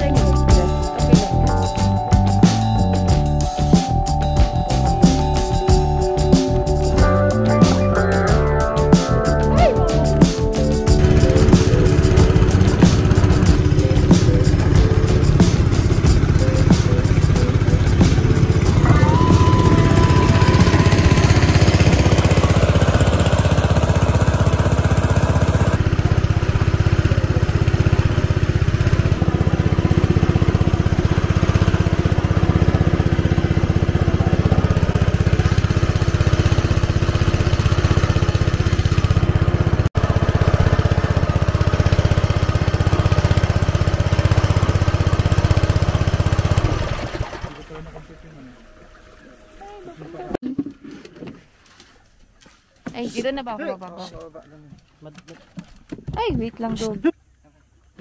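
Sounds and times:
small boat motor running: 0.0s - 51.4s.

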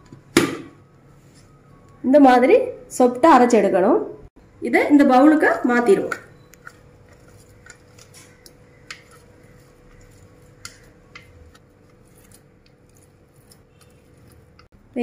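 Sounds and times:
spatula scraping blender jar: 5.4s - 14.7s
spatula clicks: 6.1s - 9.3s, 9.9s - 14.7s.

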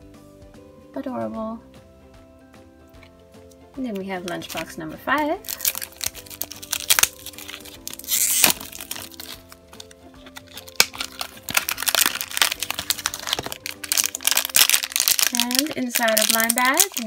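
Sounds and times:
soft background music: 0.0s - 17.0s
plastic shrink-wrap crinkling: 4.2s - 4.8s, 5.4s - 17.0s.

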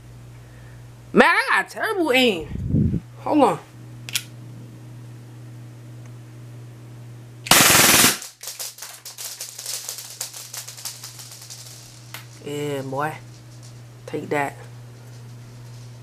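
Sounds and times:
airsoft pistol full-auto burst: 7.5s - 11.4s.

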